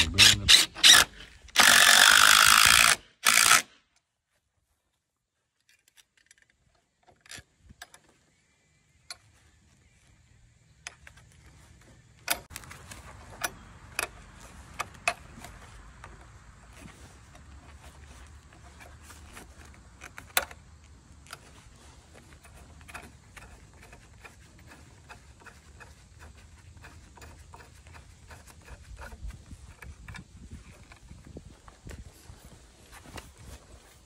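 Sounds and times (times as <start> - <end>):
power drill running: 0.0 - 3.7.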